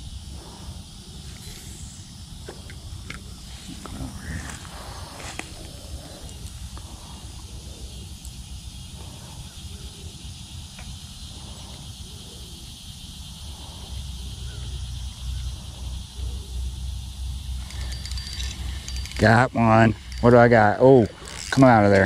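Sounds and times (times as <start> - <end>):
faint repeating calls: 0.0 - 16.8
high-pitched insect chorus: 0.0 - 22.0.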